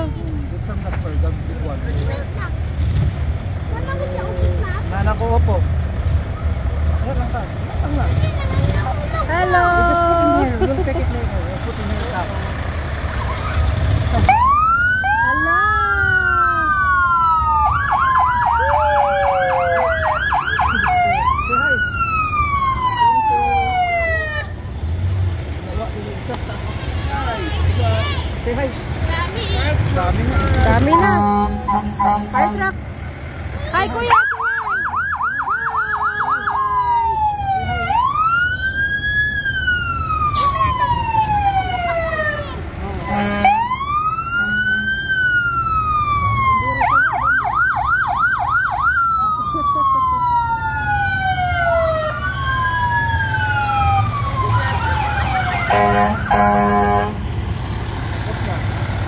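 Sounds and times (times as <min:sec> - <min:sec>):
truck engines rumbling: 0:00.0 - 0:59.0
fire truck siren wailing: 0:09.0 - 0:24.7, 0:30.2 - 0:58.5.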